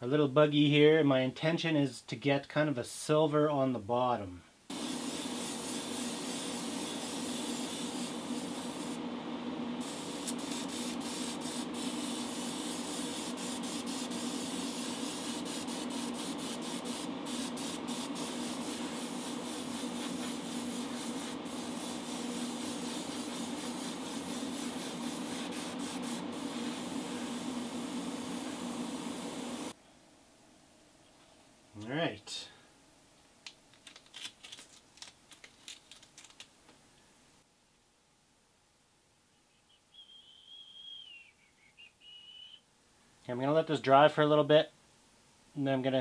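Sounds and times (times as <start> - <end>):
airbrush spraying hiss: 4.7 - 9.1, 9.8 - 29.8
steady low hum: 4.7 - 33.2.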